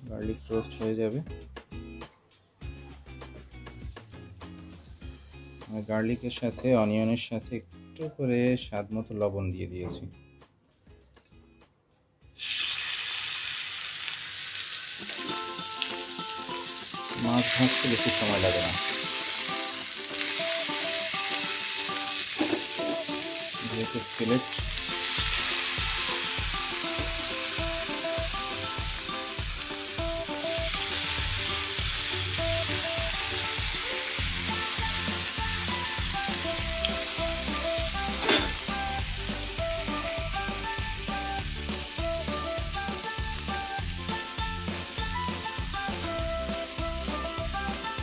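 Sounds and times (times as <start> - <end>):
background music with beat: 0.0 - 8.2, 8.9 - 12.4, 15.0 - 48.0
fish sizzling in a frying pan: 3.7 - 6.4, 12.4 - 48.0.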